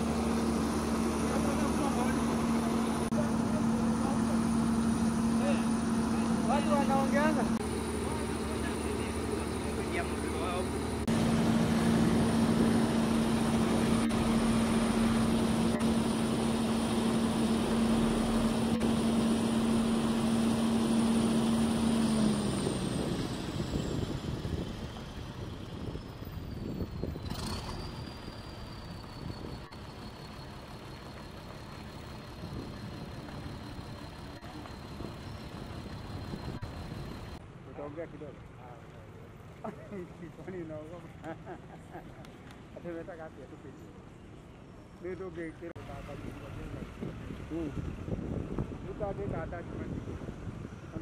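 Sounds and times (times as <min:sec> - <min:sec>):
machine humming: 0:00.0 - 0:23.8
high whine sliding down in pitch: 0:09.7 - 0:24.6.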